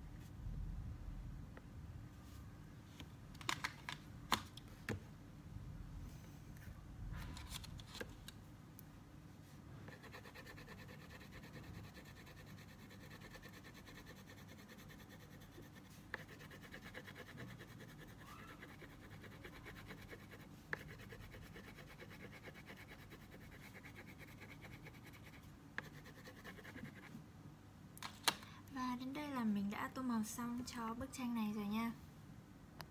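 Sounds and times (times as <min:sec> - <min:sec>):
crayon scratching on paper: 0:09.9 - 0:27.2.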